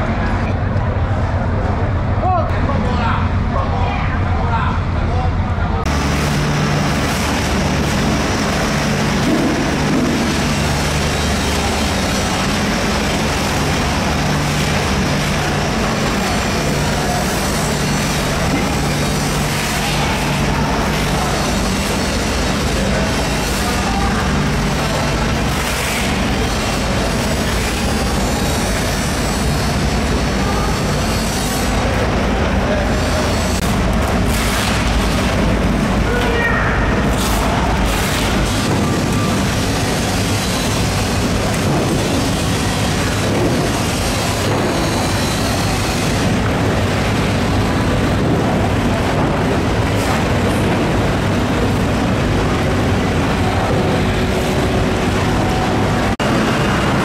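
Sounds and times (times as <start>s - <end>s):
low machine drone: 0.0s - 57.0s.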